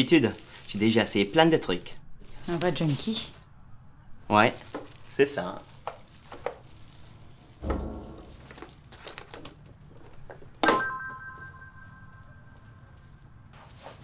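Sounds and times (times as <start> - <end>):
sharp knock: 7.6 - 8.7
steady ringing tone: 10.8 - 13.0.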